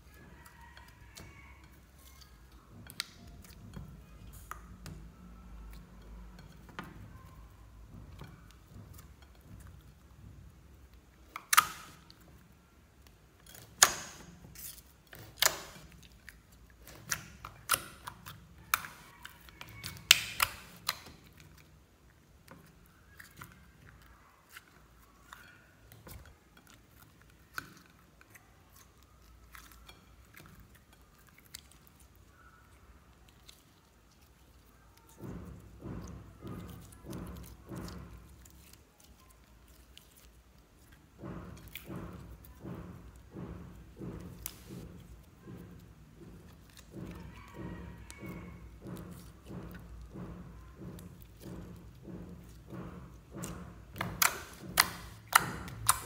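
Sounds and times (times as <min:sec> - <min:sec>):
slime squished by hand: 0:22.1 - 0:56.0.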